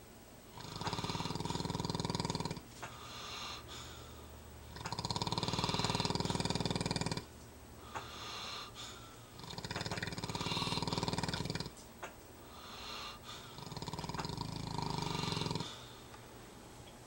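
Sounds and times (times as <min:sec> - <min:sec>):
heavy rattling snoring: 0:00.5 - 0:03.7, 0:04.6 - 0:07.3, 0:07.9 - 0:11.8, 0:12.5 - 0:15.9
quiet breathing: 0:00.5 - 0:11.8, 0:12.4 - 0:16.6.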